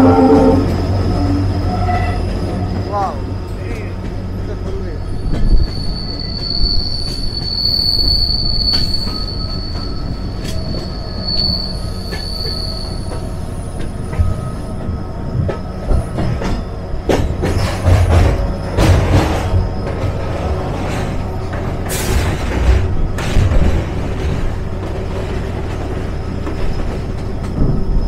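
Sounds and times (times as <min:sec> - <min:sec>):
high wheel squeal: 0:00.0 - 0:03.9, 0:04.8 - 0:16.9
rail clicks: 0:00.0 - 0:28.0
train wheels rumbling on rail: 0:00.0 - 0:28.0.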